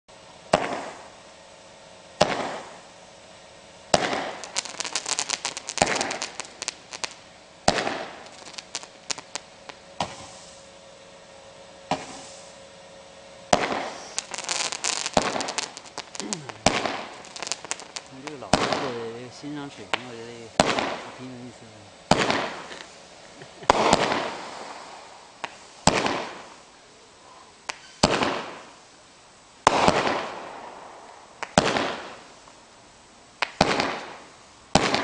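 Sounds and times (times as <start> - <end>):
fireworks crackling: 0.1 - 35.0
fireworks bangs: 0.4 - 1.2, 2.2 - 2.8, 3.9 - 10.7, 11.9 - 12.6, 13.5 - 26.7, 27.7 - 28.8, 29.6 - 32.4, 33.4 - 35.0.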